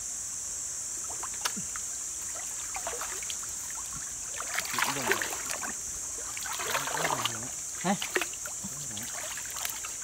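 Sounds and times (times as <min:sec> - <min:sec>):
high-pitched hiss: 0:00.0 - 0:10.0
water sloshing and splashing: 0:01.1 - 0:10.0.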